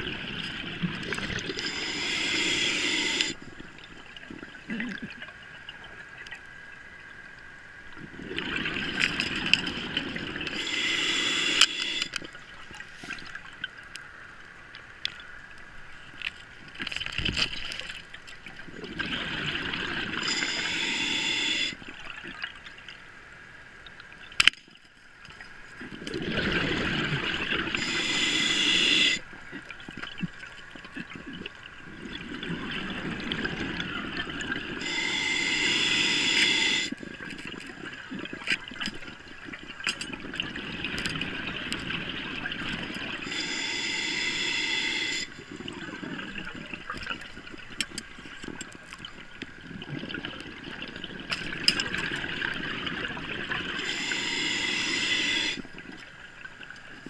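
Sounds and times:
diver breathing through regulator: 1.2s - 3.4s, 10.4s - 12.2s, 20.2s - 21.8s, 27.8s - 29.2s, 34.8s - 37.0s, 43.2s - 45.6s, 53.7s - 55.7s.

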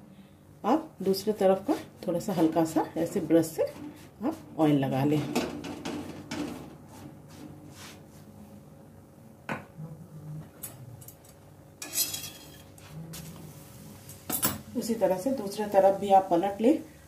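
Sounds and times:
brush dabbing oil on bread: 6.9s - 8.3s
flatbread scraping on griddle: 11.8s - 12.8s.

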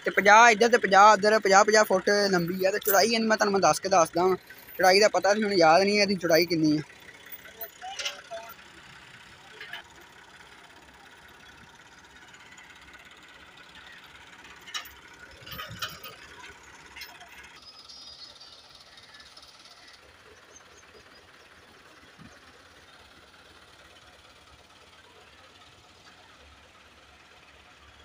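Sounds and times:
tractor diesel engines running: 0.0s - 28.0s.

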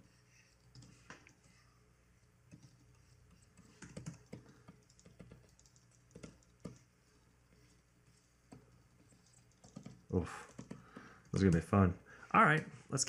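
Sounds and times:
keyboard keys clicking: 3.6s - 6.9s, 8.5s - 11.8s.

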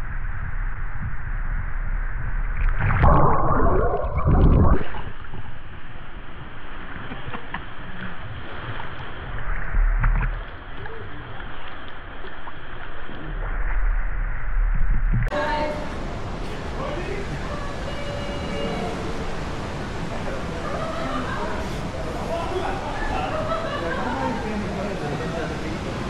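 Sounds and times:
water sloshing and splashing: 2.2s - 17.9s.

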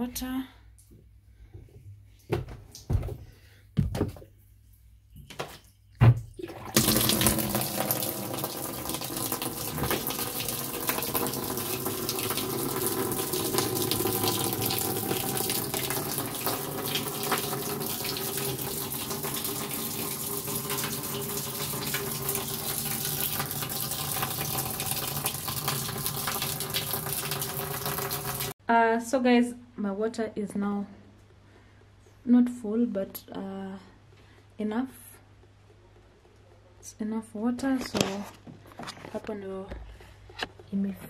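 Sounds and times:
water pouring into plastic tub: 6.4s - 28.6s.

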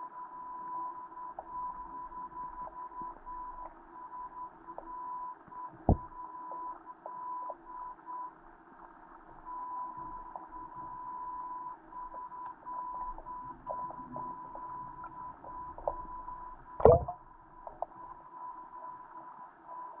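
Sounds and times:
high beep-like tone: 16.8s - 17.2s.

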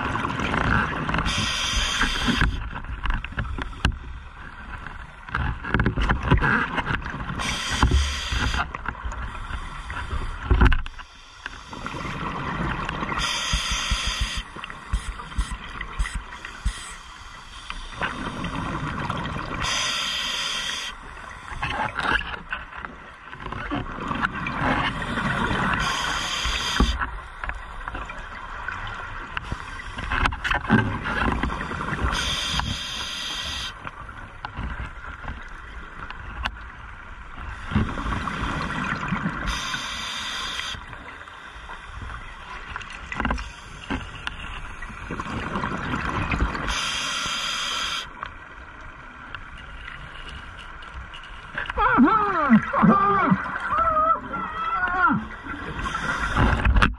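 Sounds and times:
hissing regulator inhale: 1.3s - 2.6s, 7.4s - 8.6s, 13.2s - 18.6s, 19.6s - 21.6s, 25.0s - 27.0s, 32.1s - 33.8s, 39.5s - 40.8s, 46.7s - 48.1s, 55.7s - 56.6s.

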